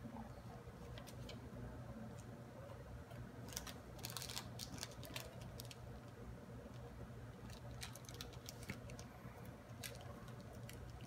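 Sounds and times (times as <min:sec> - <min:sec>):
plastic wrapper crinkling and tearing: 0:03.4 - 0:05.8, 0:07.4 - 0:09.1, 0:09.7 - 0:11.0.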